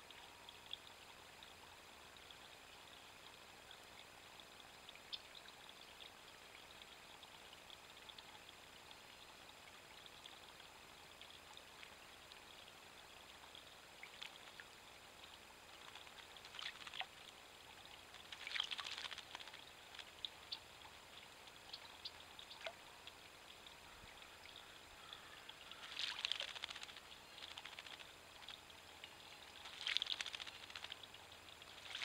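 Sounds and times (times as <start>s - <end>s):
small drips and ticks: 0.0s - 32.0s
bird splashing in water: 15.8s - 17.1s, 18.1s - 20.1s, 25.7s - 28.1s, 29.6s - 32.0s.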